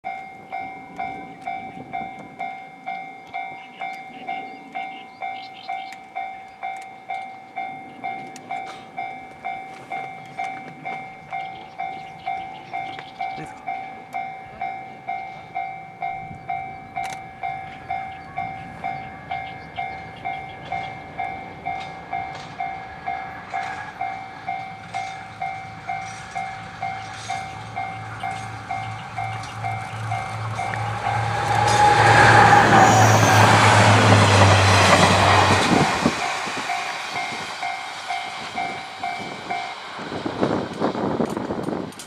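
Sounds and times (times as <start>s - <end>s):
level crossing warning bell: 0.0s - 41.2s
diesel locomotive engine rumble: 0.1s - 42.0s.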